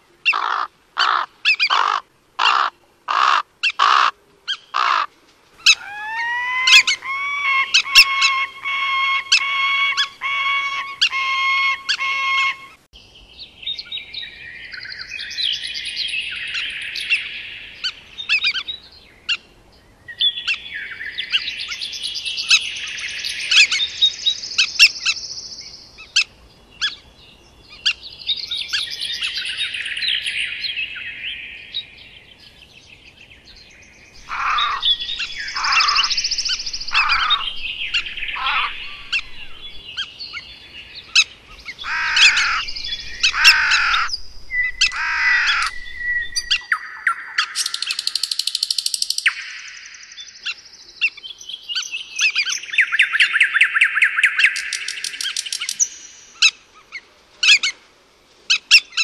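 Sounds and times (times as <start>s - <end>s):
birds chattering song: 0.0s - 57.8s
bird calls sweeping downward: 5.6s - 12.8s, 34.0s - 57.7s
sharp ticks: 47.6s - 49.3s.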